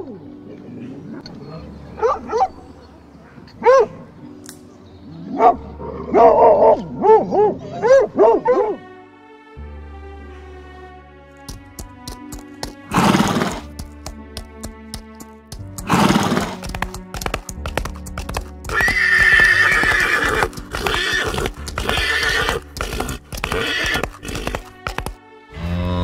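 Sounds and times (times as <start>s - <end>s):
background music: 0.0s - 26.0s
hoofbeats: 11.4s - 26.0s
horse neighing and whinnying: 12.9s - 13.7s, 15.8s - 16.6s, 18.7s - 24.7s.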